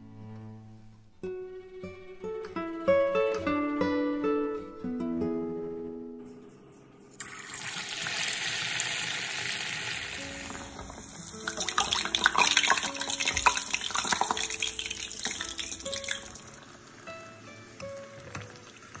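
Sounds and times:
background music: 0.0 - 7.6, 10.0 - 19.0
dough sizzling in hot oil: 7.2 - 16.8.

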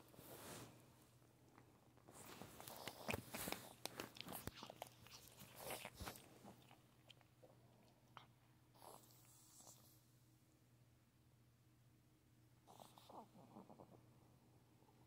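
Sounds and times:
dog chewing: 2.2 - 9.0.

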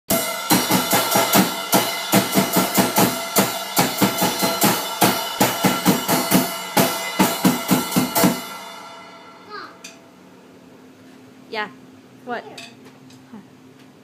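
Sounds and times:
drum kit beat: 0.1 - 10.0
cymbals ringing: 0.1 - 10.3.

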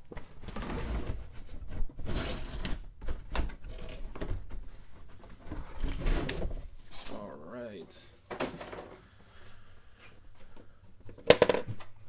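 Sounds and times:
cardboard box rustling and scraping: 0.5 - 2.8.

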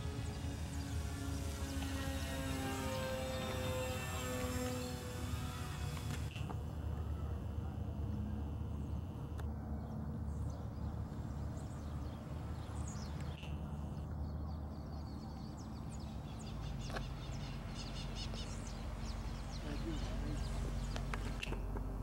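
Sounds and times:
small birds chirping: 9.8 - 21.8.

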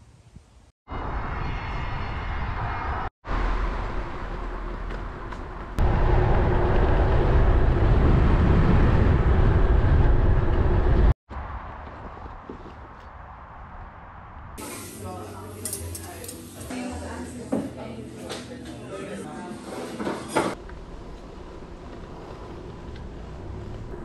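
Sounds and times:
wind rumbling on microphone: 0.0 - 14.6.

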